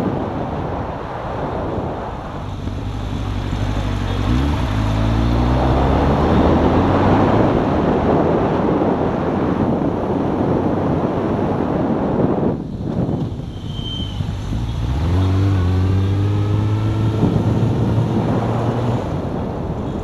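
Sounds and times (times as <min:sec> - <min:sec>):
wind buffeting microphone: 0:00.0 - 0:20.0
motorcycle engine: 0:02.1 - 0:09.5, 0:12.4 - 0:20.0.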